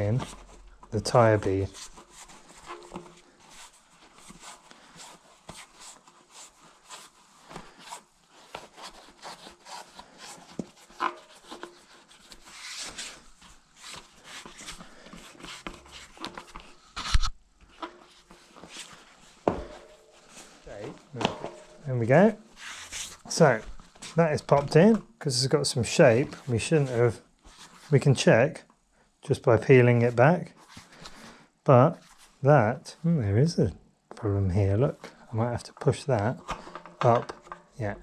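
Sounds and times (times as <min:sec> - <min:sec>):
tyre rubbing on rim: 0:00.0 - 0:16.8.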